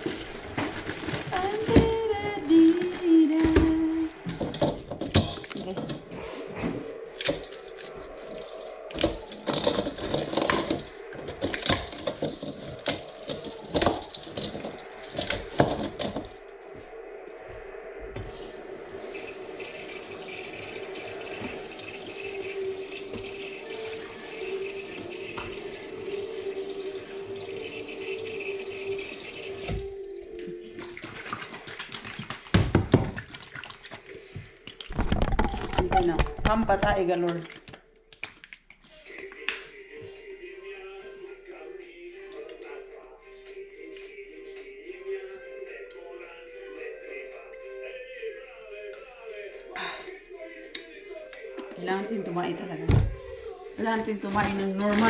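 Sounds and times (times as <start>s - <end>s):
tap water running: 0.0s - 6.1s, 7.2s - 16.3s, 18.2s - 36.5s, 53.8s - 55.0s
water splashes and knocks: 0.0s - 16.4s, 19.1s - 30.0s, 30.6s - 38.6s, 54.0s - 55.0s
noodles squeezed in water: 7.1s - 16.4s, 30.4s - 36.2s.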